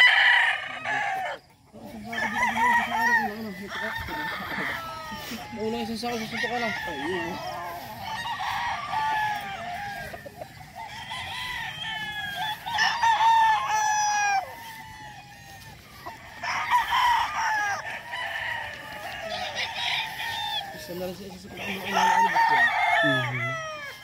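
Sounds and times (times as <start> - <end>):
roosters crowing: 0.0 - 24.0.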